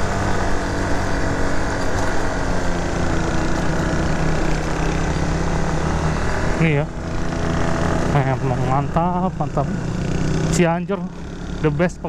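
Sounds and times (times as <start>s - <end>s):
motorcycle engine running: 0.0s - 12.0s
wind and road noise: 0.0s - 12.0s.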